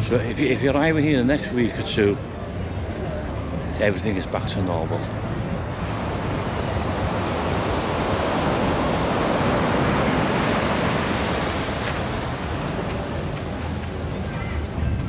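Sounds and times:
ocean surf washing ashore: 0:03.5 - 0:15.0.

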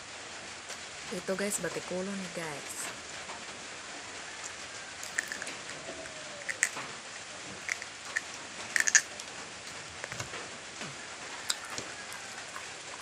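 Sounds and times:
wet chewing mouth clicks: 0:05.0 - 0:05.7, 0:06.4 - 0:06.8, 0:07.6 - 0:09.3, 0:11.4 - 0:13.0.

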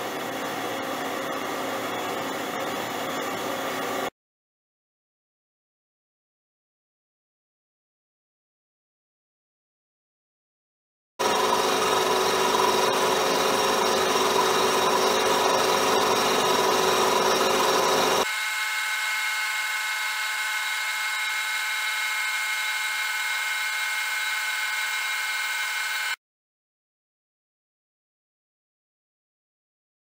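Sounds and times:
milling machine cutting metal: 0:11.2 - 0:26.2.

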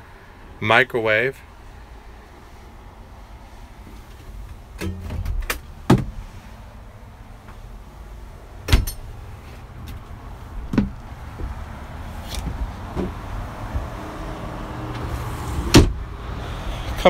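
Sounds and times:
thumps on a boat deck: 0:10.7 - 0:11.6.

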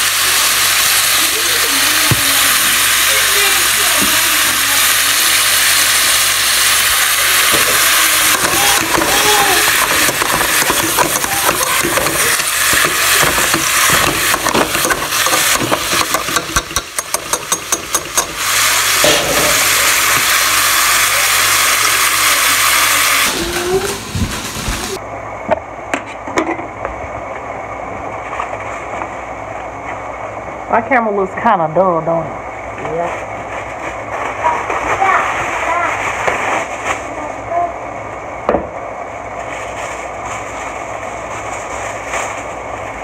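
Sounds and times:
meat sizzling in a frying pan: 0:00.0 - 0:23.5.

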